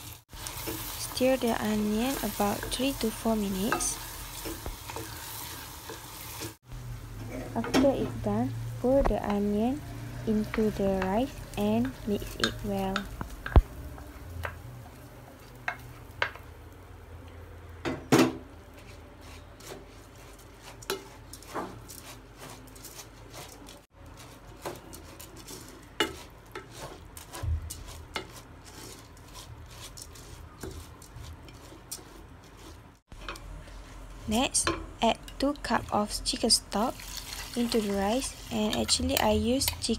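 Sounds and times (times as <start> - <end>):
wooden spoon stirring rice: 0.3 - 6.6, 9.2 - 16.4, 18.7 - 36.2.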